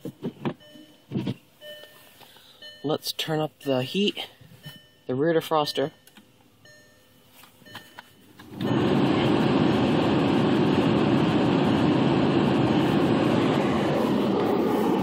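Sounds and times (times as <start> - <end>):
heater fan air rushing: 8.4 - 15.0.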